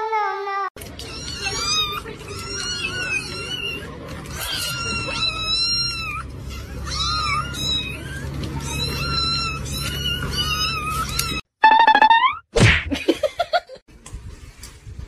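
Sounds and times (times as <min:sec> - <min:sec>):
kittens mewing: 0:01.0 - 0:11.4.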